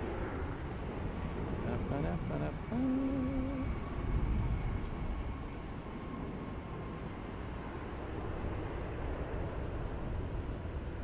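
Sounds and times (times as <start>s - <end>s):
faint high whine: 1.3s - 9.6s.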